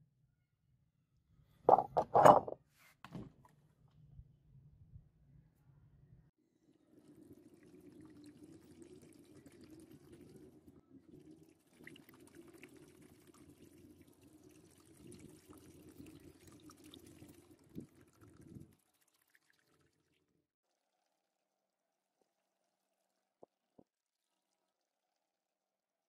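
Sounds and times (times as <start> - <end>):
liquid pouring into plastic trough: 7.0 - 20.3.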